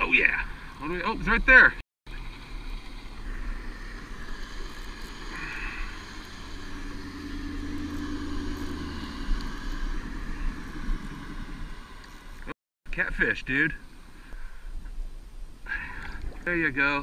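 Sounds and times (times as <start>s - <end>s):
motorboat engine humming: 2.1s - 12.6s.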